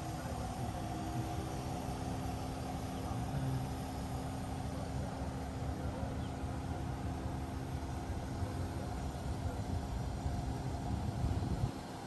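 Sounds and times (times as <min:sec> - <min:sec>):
diesel engine humming: 0:00.0 - 0:12.0
wind rumbling on microphone: 0:10.0 - 0:12.0.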